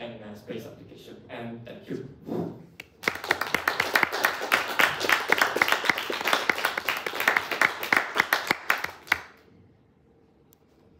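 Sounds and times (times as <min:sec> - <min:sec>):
audience applauding: 0:03.0 - 0:09.4.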